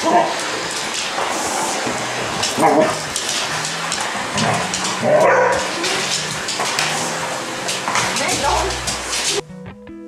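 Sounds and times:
vacuum cleaner running: 0:00.0 - 0:09.4
dog whining: 0:02.6 - 0:03.0, 0:04.5 - 0:06.2.

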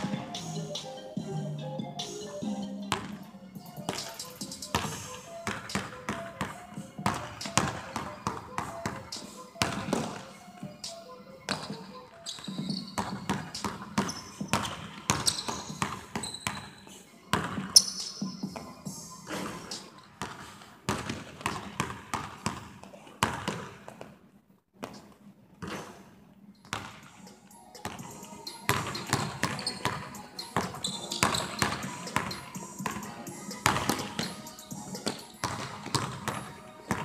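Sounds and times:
music playing: 0:00.0 - 0:20.2, 0:26.8 - 0:37.0
basketball bouncing on hardwood floor: 0:04.7 - 0:09.0, 0:12.6 - 0:16.7, 0:20.2 - 0:24.0, 0:28.7 - 0:30.0, 0:30.6 - 0:33.0, 0:33.6 - 0:34.3, 0:35.0 - 0:37.0.

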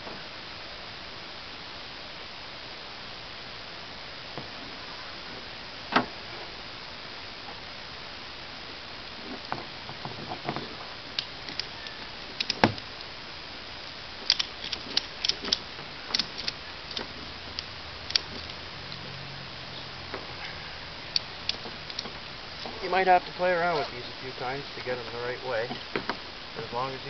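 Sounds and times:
ratchet strap buckle clicking: 0:11.2 - 0:12.8, 0:14.2 - 0:19.0.

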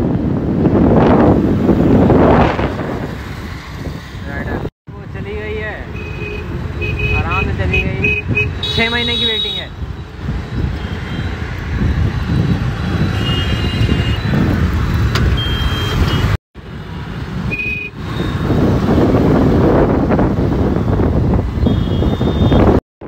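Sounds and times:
motorbike road and wind noise: 0:00.0 - 0:22.8
high-pitched traffic horn beeps: 0:05.9 - 0:09.7, 0:10.8 - 0:11.3, 0:13.1 - 0:14.4, 0:15.3 - 0:16.4, 0:17.5 - 0:18.4, 0:21.6 - 0:22.8.

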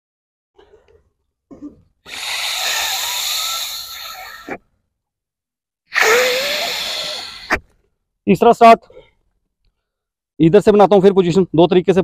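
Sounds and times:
rescue breaths blown into manikin: 0:02.0 - 0:04.6, 0:05.9 - 0:07.8.

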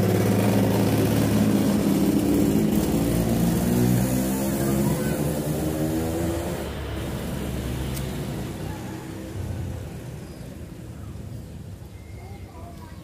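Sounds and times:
vehicle engine passing by: 0:00.0 - 0:11.3.

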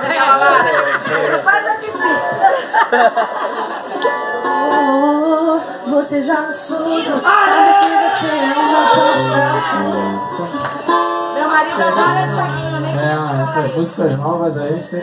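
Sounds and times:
woman singing into microphone: 0:04.5 - 0:09.7, 0:11.4 - 0:13.5
low sustained bass notes: 0:12.0 - 0:14.3.

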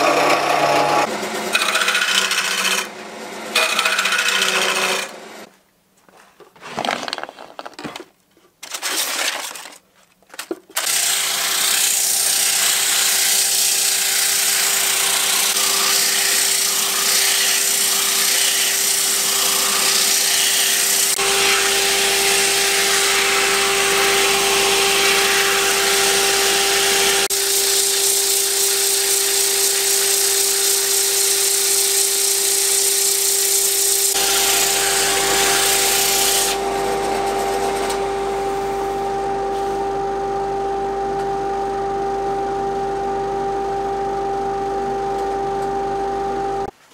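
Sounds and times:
wood lathe humming: 0:00.0 - 0:05.4, 0:10.9 - 0:46.7
sandpaper hissing on spinning wood: 0:11.1 - 0:37.8.

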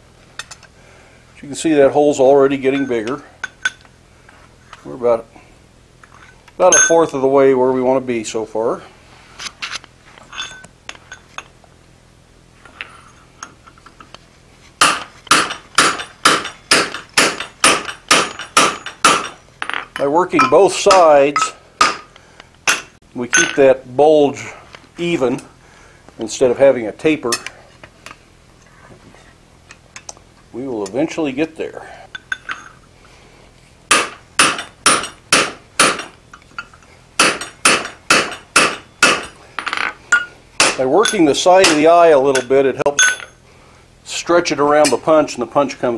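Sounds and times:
hammer striking metal punch: 0:14.8 - 0:22.1, 0:22.7 - 0:23.6, 0:33.9 - 0:36.2, 0:37.2 - 0:43.3.

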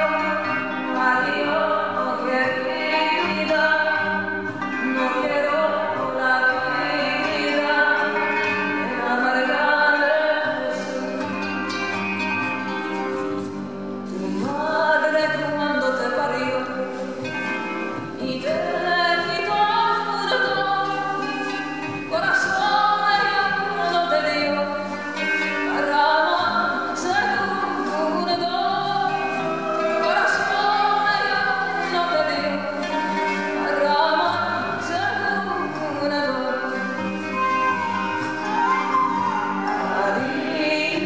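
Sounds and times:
dance music: 0:00.0 - 0:41.0
singing voice holding long notes: 0:18.2 - 0:41.0.

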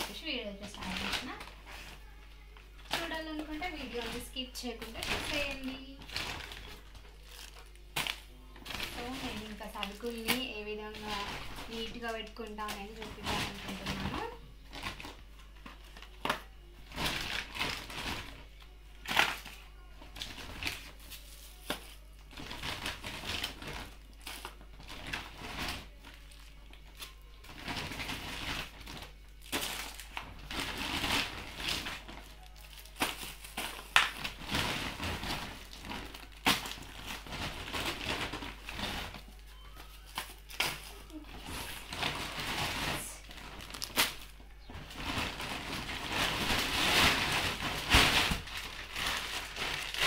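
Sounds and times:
plastic bags crinkling: 0:00.0 - 0:50.0
packets and boxes knocking: 0:02.9 - 0:15.2, 0:27.4 - 0:50.0.

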